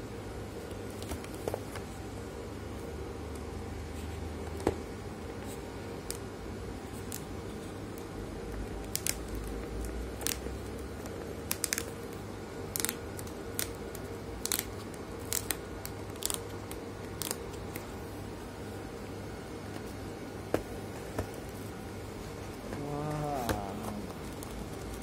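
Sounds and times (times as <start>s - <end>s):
steady low hum: 0.0s - 25.0s
plastic sleeve crinkling: 12.7s - 17.9s.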